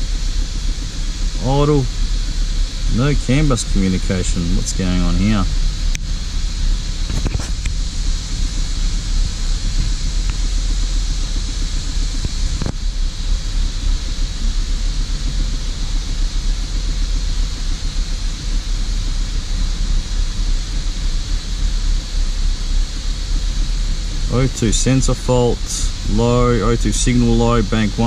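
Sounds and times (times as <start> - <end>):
engine idling roughly: 0.0 - 28.0
steady hiss: 0.0 - 28.0.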